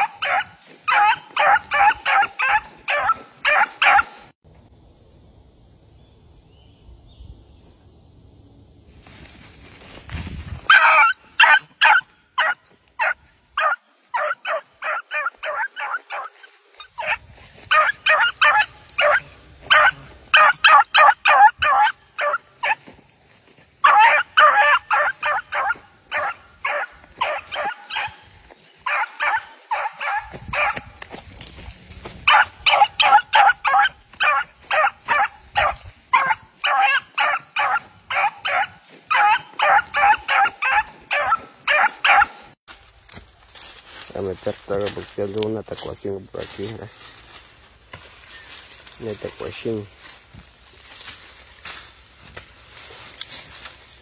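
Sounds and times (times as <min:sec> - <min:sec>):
beagles yipping: 0:00.0 - 0:04.2, 0:10.6 - 0:22.8, 0:23.8 - 0:30.9, 0:32.2 - 0:42.5.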